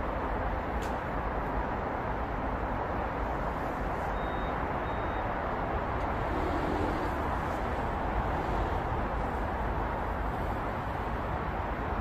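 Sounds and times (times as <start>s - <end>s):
road traffic: 0.0s - 12.0s
faint short high beeps: 4.1s - 5.4s.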